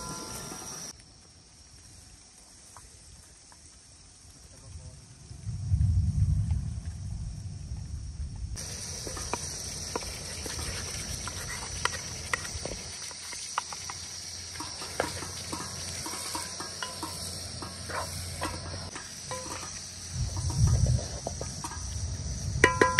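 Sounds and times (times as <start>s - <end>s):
crickets chirring: 0.0s - 22.9s
wooden spoon stirring in pot: 8.6s - 21.9s.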